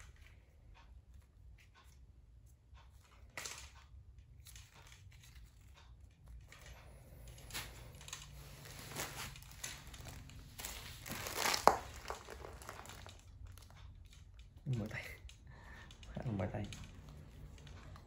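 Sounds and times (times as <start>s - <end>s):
plastic tape rustling: 3.0s - 18.0s
tape crackle: 4.4s - 18.0s.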